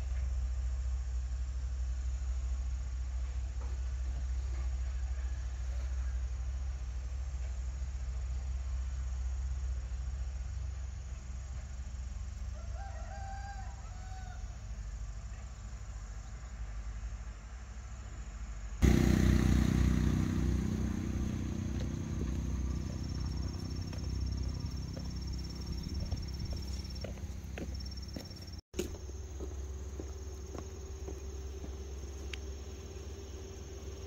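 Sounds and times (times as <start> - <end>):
rooster crowing: 4.7 - 6.3, 12.5 - 14.8
loud low rumbling hum: 14.4 - 34.0
steady low rumble: 18.5 - 34.0.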